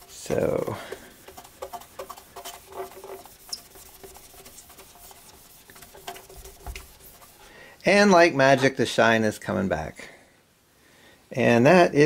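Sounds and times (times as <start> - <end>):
cloth rubbing on wood: 0.0 - 8.9.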